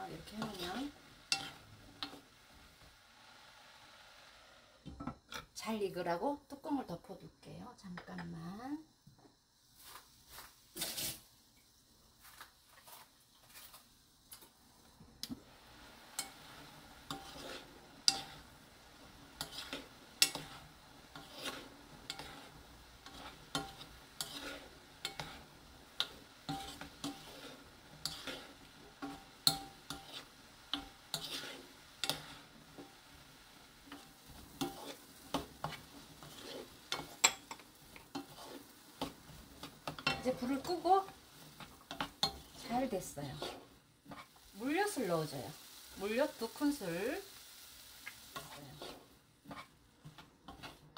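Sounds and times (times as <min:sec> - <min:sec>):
wooden spoon scraping a pan: 0:00.0 - 0:02.3, 0:09.8 - 0:11.2, 0:12.2 - 0:14.5, 0:16.1 - 0:47.3, 0:48.0 - 0:50.9
soft sizzle: 0:00.0 - 0:50.9.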